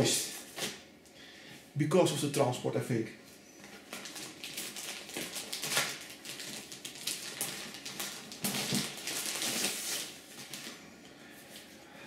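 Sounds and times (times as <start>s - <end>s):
plastic bag crinkling: 3.6s - 10.8s.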